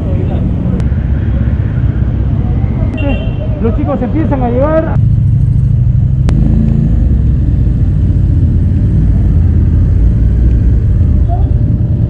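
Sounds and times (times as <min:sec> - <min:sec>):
motorcycle engines idling: 0:03.4 - 0:12.0.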